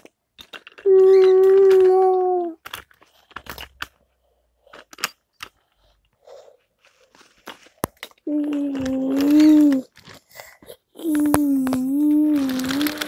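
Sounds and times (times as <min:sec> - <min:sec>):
child hooting: 0:00.9 - 0:02.6
toy train wheels clicking on track: 0:08.3 - 0:13.0.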